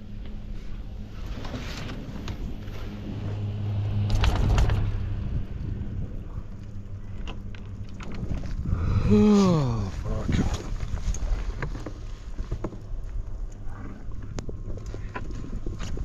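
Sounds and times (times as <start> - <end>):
rumbling clatter: 0.0 - 9.2
chairlift mechanical hum: 0.0 - 16.0.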